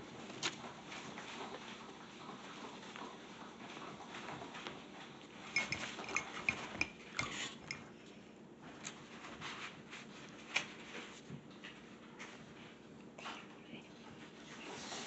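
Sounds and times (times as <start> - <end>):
paintbrush clinking against mug: 5.5 - 7.9.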